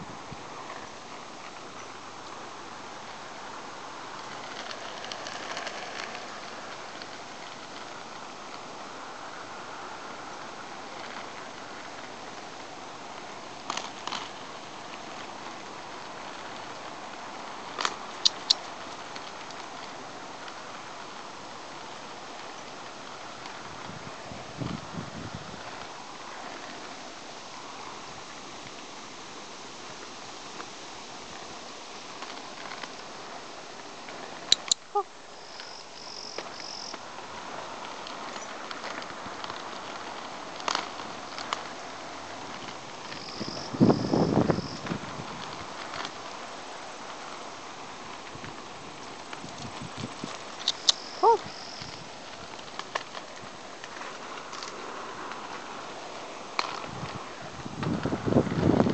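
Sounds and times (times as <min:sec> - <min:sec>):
light scattered ticks: 0:00.6 - 0:24.0, 0:29.8 - 0:58.8
sharp clicks: 0:17.8 - 0:18.7.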